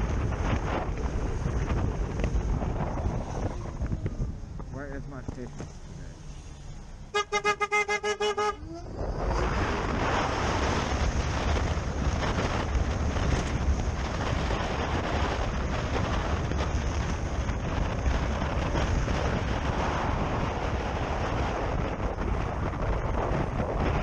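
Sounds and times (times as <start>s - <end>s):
wind rush on microphone: 0.0s - 6.8s, 8.3s - 24.0s
road and traffic noise: 0.0s - 24.0s
vehicle horn short beeps: 7.1s - 8.7s.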